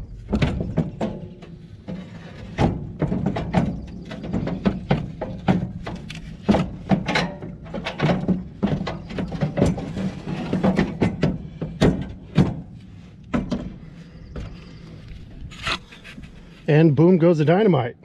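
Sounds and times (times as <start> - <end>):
metallic knocks and clunks: 0.0 - 14.7.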